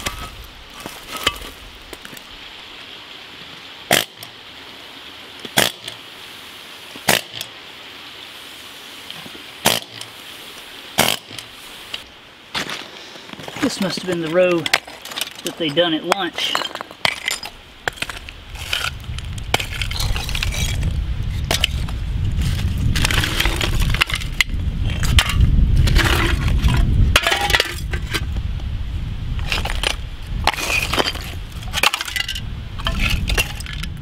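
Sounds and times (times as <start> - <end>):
concrete chunks clacking and scraping: 0.0 - 2.2, 12.6 - 28.3, 29.4 - 33.9.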